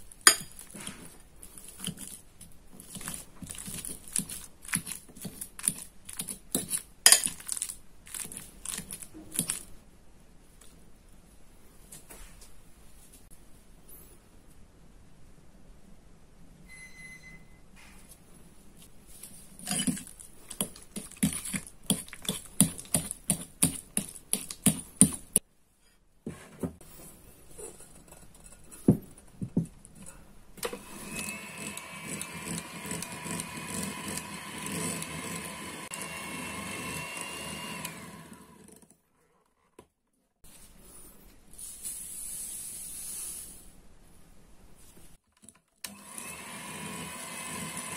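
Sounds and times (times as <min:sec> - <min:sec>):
electric hand mixer whining: 0:30.6 - 0:38.8, 0:45.9 - 0:47.9.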